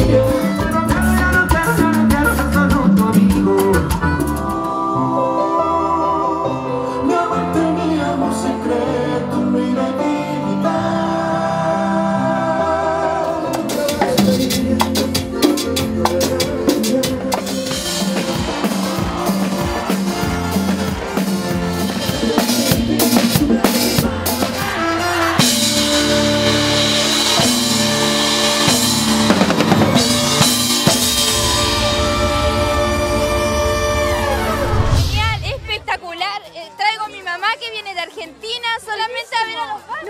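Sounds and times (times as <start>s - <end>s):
live pop band playing: 0.0s - 36.0s
rapid drum hits: 14.0s - 35.8s.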